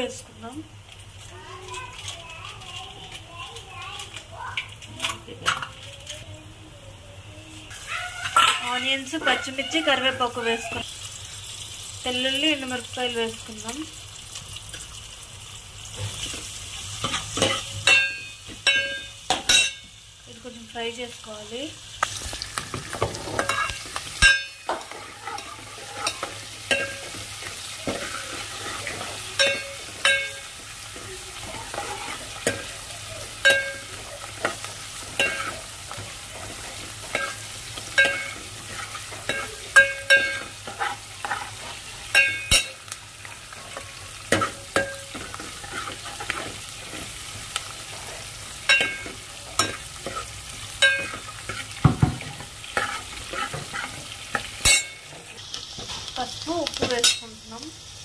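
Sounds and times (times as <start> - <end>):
vegetables sizzling in hot oil: 0.0 - 58.0
steel ladle clinking on pan: 17.0 - 19.9, 23.3 - 30.6, 33.4 - 42.9, 44.3 - 47.0, 48.6 - 55.1.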